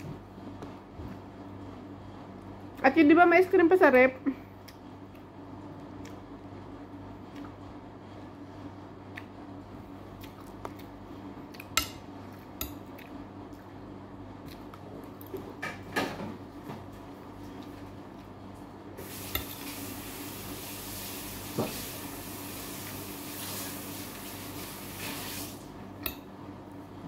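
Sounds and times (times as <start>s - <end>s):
constant low hum: 0.0s - 20.3s.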